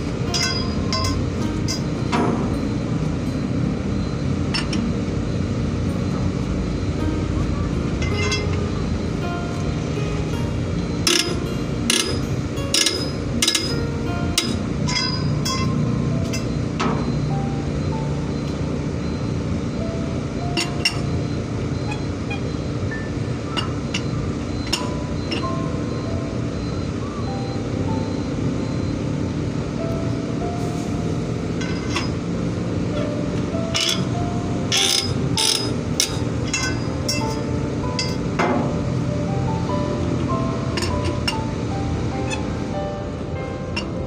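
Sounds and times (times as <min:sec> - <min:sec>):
background music: 0:00.0 - 0:44.0
pry bar clinking on steel rim: 0:00.3 - 0:01.8, 0:14.4 - 0:16.5, 0:34.7 - 0:38.2
tools striking steel wheel rim: 0:00.3 - 0:02.7, 0:04.5 - 0:04.8, 0:08.0 - 0:08.6, 0:11.0 - 0:17.2, 0:20.6 - 0:21.1, 0:21.8 - 0:25.5, 0:31.6 - 0:32.2, 0:33.7 - 0:38.8, 0:40.7 - 0:41.4.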